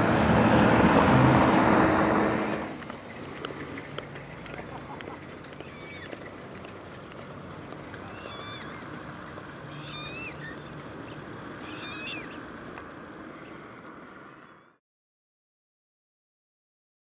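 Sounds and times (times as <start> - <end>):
outdoor background rumble: 0.0 - 14.8
bird harsh rising calls: 5.6 - 6.2, 7.7 - 8.9, 9.6 - 12.5.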